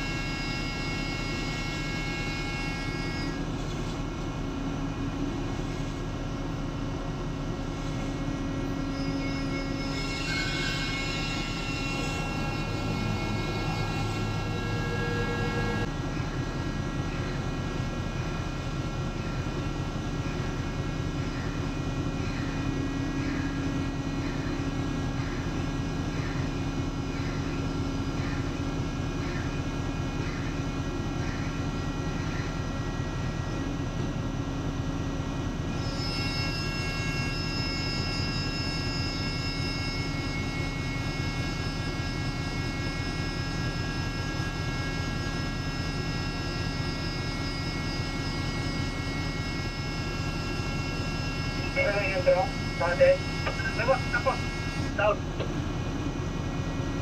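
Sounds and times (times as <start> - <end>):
crane engine droning: 0.0 - 57.0
high-pitched whine: 0.0 - 57.0.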